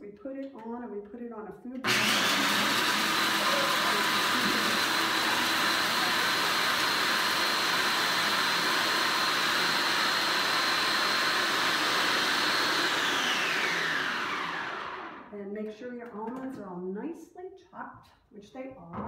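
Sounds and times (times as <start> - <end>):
food processor grinding nuts: 1.8 - 15.3.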